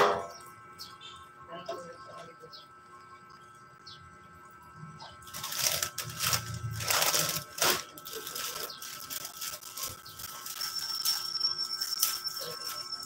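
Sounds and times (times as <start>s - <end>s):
plastic wrappers crinkling: 5.2s - 13.0s.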